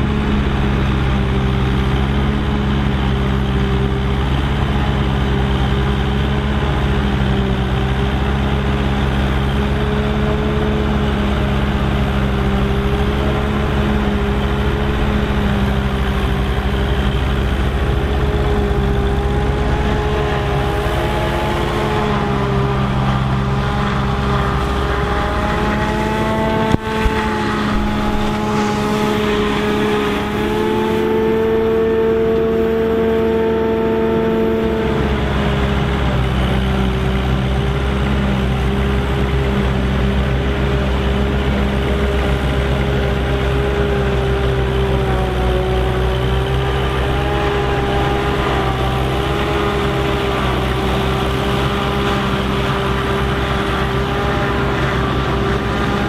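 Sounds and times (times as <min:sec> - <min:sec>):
forage harvester chopping corn: 0:00.0 - 0:56.0
tractor engines running: 0:00.0 - 0:56.0
high whining tones: 0:45.6 - 0:52.4.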